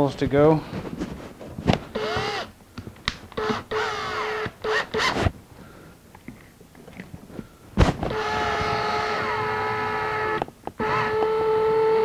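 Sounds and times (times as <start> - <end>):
cordless drill motor: 1.9 - 2.5, 3.3 - 5.3, 8.0 - 12.0.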